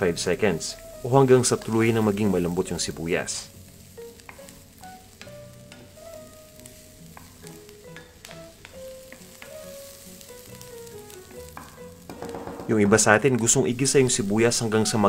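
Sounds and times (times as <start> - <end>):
onion and garlic sizzling in oil: 0.0 - 15.0
soft background melody: 0.0 - 15.0
wooden spatula tapping pan: 4.2 - 4.5, 5.2 - 6.0, 7.1 - 9.7, 11.3 - 13.1.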